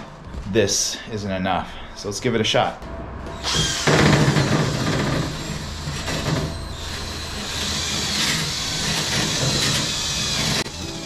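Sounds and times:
drill motor whine: 3.3s - 11.0s.

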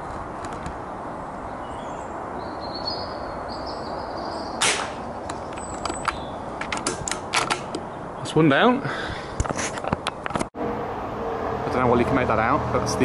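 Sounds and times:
air rifle shot: 4.6s - 5.1s.

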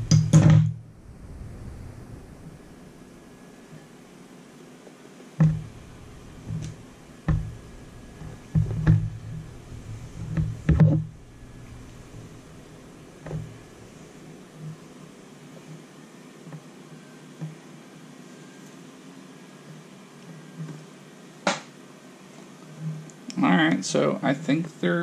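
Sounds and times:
tire knocking on desktop: 5.4s - 5.8s, 6.4s - 11.1s.

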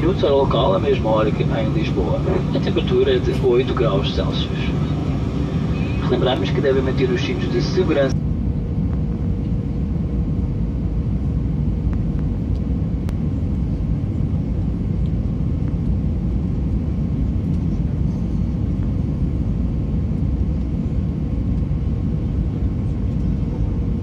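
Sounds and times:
thin steady hum: 0.0s - 15.2s
aircraft cabin engine rumble: 0.0s - 24.0s.

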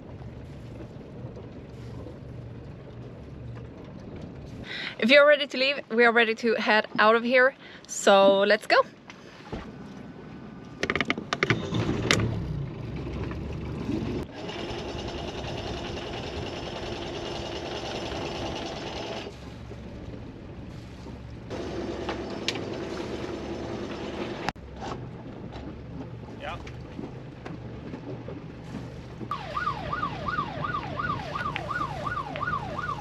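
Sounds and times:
diesel engine starting and running: 10.7s - 33.0s.

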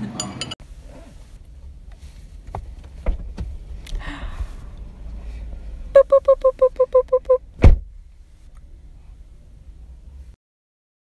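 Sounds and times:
low cabin rumble: 0.7s - 10.4s
car warning chime beeping: 6.0s - 7.4s.

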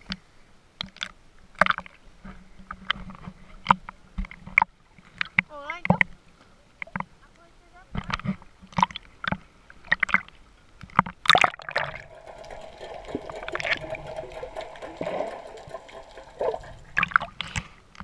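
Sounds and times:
loud splash: 11.4s - 17.6s
seawater splashing: 11.4s - 17.8s.

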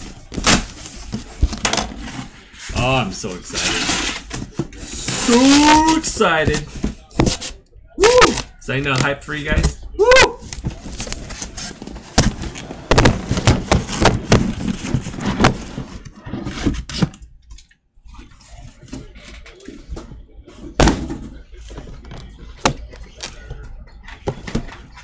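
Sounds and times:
cardboard scraping and rustling: 0.0s - 7.6s, 10.5s - 17.2s
boxes thumping down: 11.7s - 16.9s, 20.7s - 21.4s.

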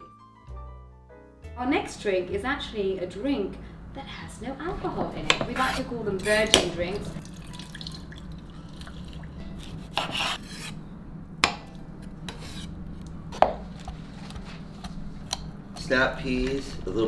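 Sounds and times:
steady low hum: 1.6s - 17.0s
knife slicing on cutting board: 9.6s - 10.8s.

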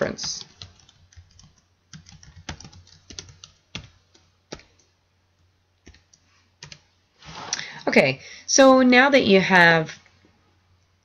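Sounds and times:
computer keyboard typing: 0.0s - 6.9s.

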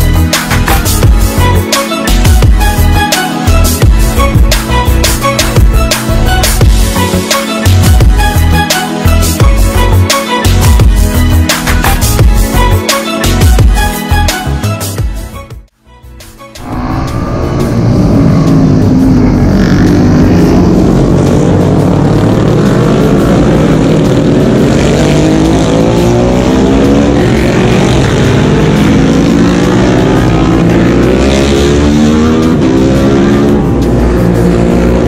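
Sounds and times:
racing motorcycles passing: 16.6s - 35.0s.

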